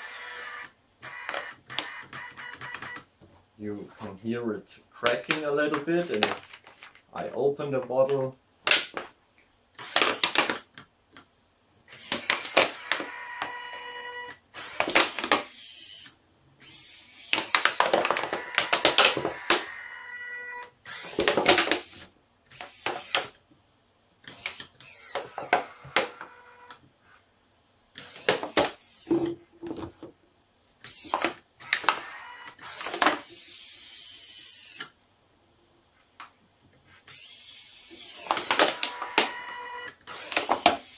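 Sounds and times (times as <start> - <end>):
servo motors whining: 11.9 - 23.4, 24.3 - 26.8, 30.8 - 34.9, 37.1 - 40.9.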